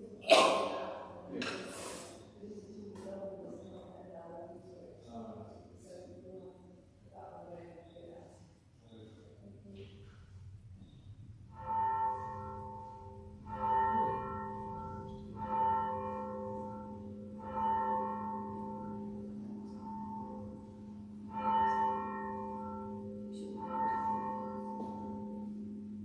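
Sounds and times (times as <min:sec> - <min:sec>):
low bell hum: 0:10.6 - 0:26.0
church bell tolling: 0:11.3 - 0:26.0.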